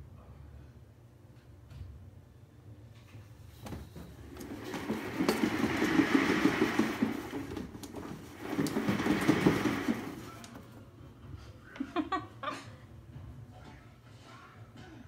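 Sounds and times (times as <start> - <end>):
cat exercise wheel rumbling: 3.5 - 10.7.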